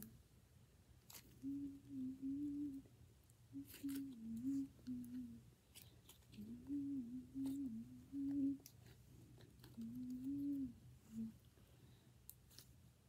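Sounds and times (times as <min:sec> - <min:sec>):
girl humming: 0:01.4 - 0:02.9, 0:03.6 - 0:05.4, 0:06.4 - 0:08.6, 0:09.8 - 0:11.4.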